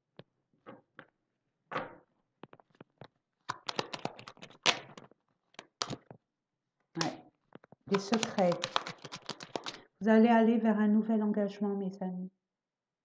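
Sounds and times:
cards shuffled by hand: 2.5 - 6.2, 7.0 - 9.9.

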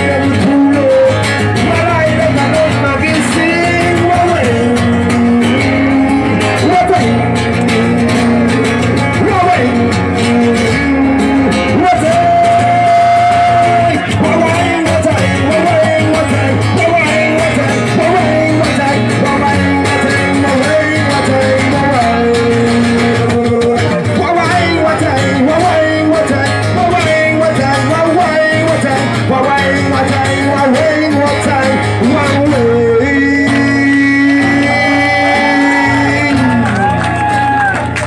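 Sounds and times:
person singing: 0.0 - 37.8
acoustic guitar playing: 0.0 - 38.0.

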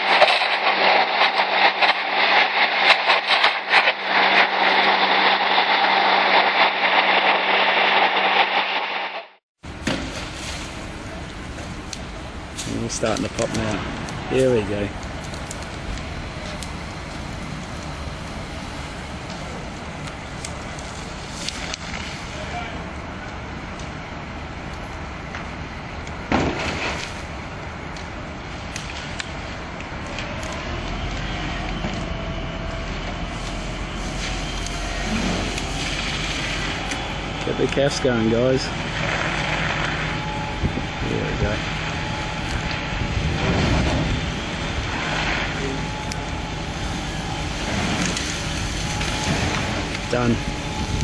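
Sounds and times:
pop and whoosh: 0.0 - 10.0
sharp pops: 0.0 - 10.6
car burning: 0.0 - 51.0
fire pump engine running: 0.0 - 51.0.

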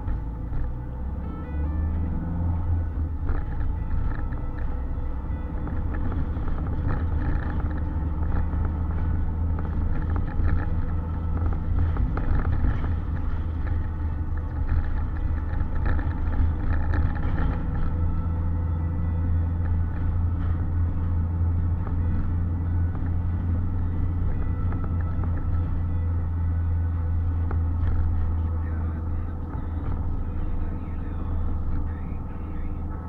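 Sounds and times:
car cabin engine and tyre rumble: 0.0 - 33.0
faint ticks and rattles: 5.6 - 18.2.

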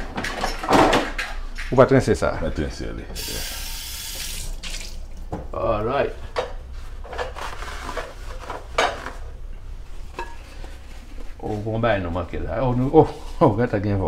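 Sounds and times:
kitchen tap running into sink: 3.2 - 5.3.

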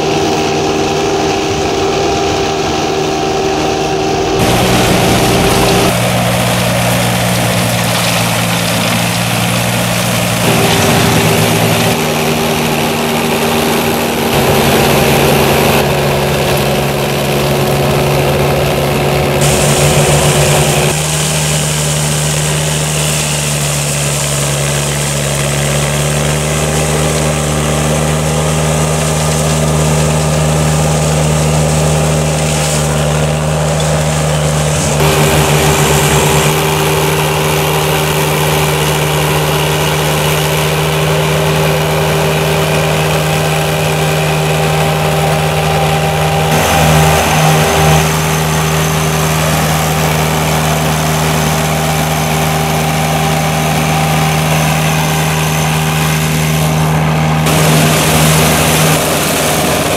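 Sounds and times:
mulcher engine running: 0.0 - 59.9
rotor shredding grass: 0.0 - 59.9.

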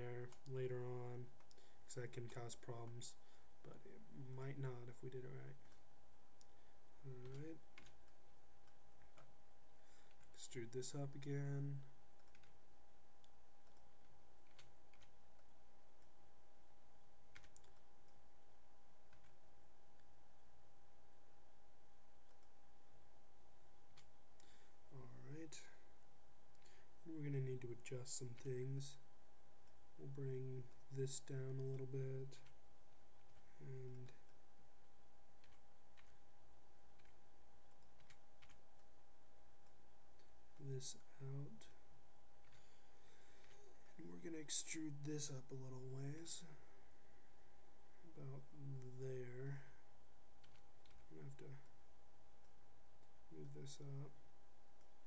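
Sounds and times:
faint electrical hum: 0.0 - 55.0
keyboard and mouse clicks: 7.2 - 9.3, 12.2 - 12.6, 13.2 - 16.2, 17.3 - 18.2, 19.1 - 19.4, 37.0 - 38.9, 50.4 - 51.1.

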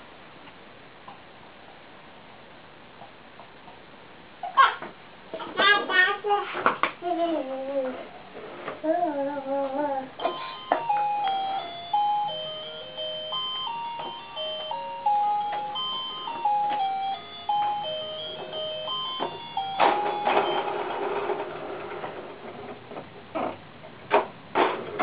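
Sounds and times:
toy playing beeping electronic tune: 10.2 - 21.1.

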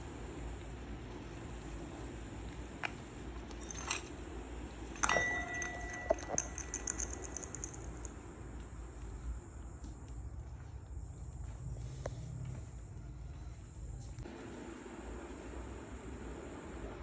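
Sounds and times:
low background hum: 0.0 - 17.0
light jingling: 3.5 - 4.2, 4.9 - 8.2
metallic clink: 3.5 - 4.2, 4.9 - 8.2
ringing tone: 5.0 - 7.8.

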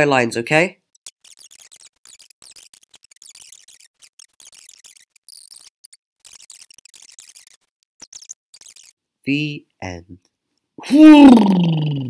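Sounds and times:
rapid computer clicking: 0.8 - 9.0.

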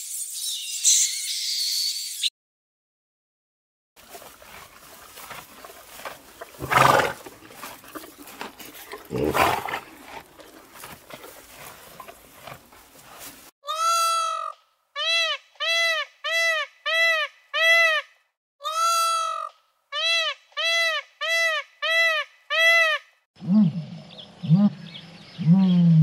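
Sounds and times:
loud rough animal calls: 4.0 - 13.3.

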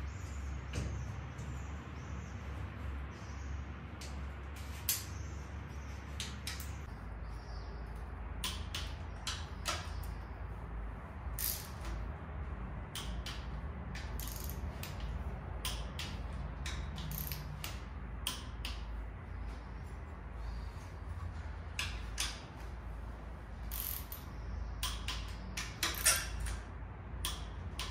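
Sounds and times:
torque wrench ratchet clicking: 11.4 - 12.0, 13.0 - 18.8, 23.7 - 26.6.

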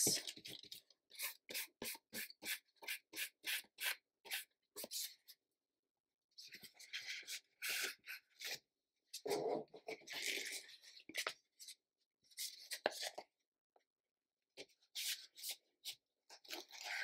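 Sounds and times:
paintbrush scrubbing paint: 0.8 - 5.2.

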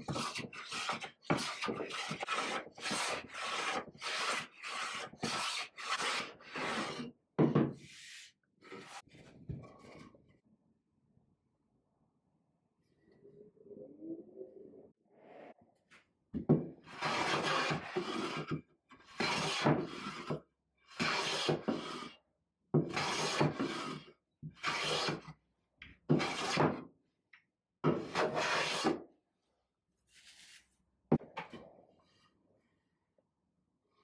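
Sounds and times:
hand plane rasping on wood: 0.1 - 7.0, 16.9 - 18.5, 19.2 - 20.3, 21.0 - 22.1, 22.9 - 25.2.

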